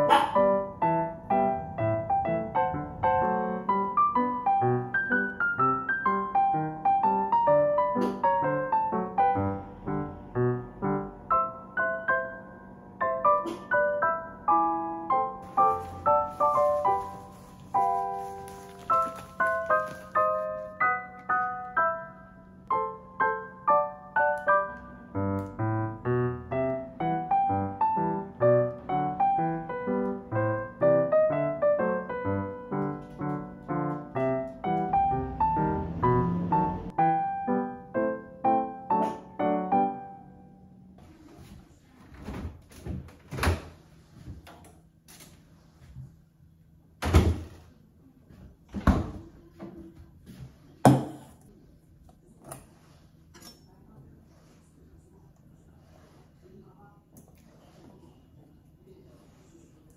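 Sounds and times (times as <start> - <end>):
piano notes and chords: 0.0 - 41.0
refrigerator door shutting: 47.0 - 47.6.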